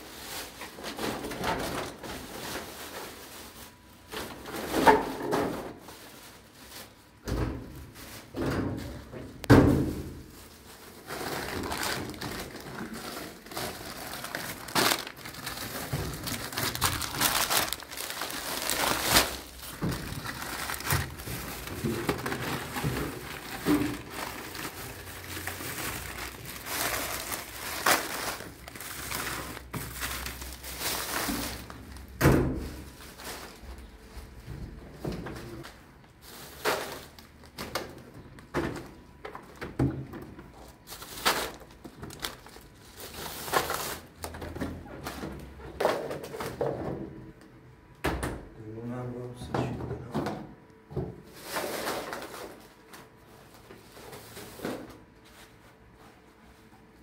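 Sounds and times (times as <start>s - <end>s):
crinkling and rustling: 0.0s - 47.6s, 51.1s - 57.0s
objects knocking and thudding: 4.1s - 5.9s, 7.2s - 10.4s, 19.6s - 27.4s.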